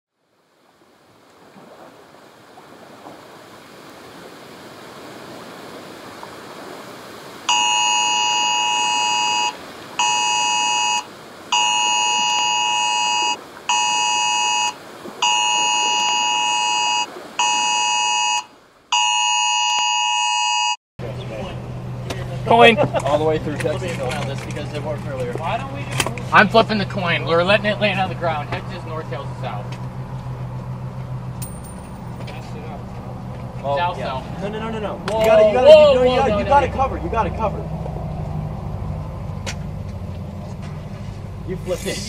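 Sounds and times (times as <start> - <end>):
two-tone emergency alert signal: 7.5 - 20.8.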